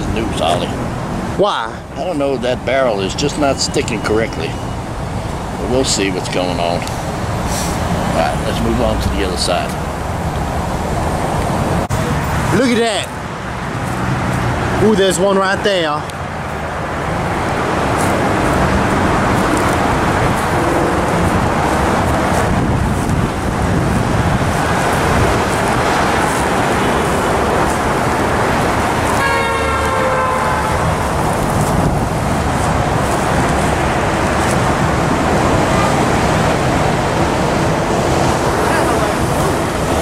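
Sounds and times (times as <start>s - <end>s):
road traffic noise: 0.0s - 40.0s
car horn toot: 29.2s - 30.9s.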